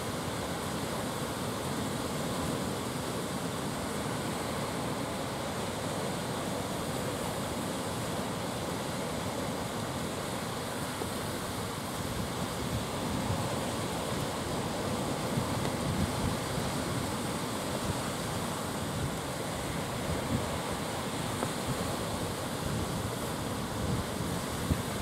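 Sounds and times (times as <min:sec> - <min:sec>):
rough sea surf rushing: 0:00.0 - 0:25.0
wind blowing: 0:10.0 - 0:25.0.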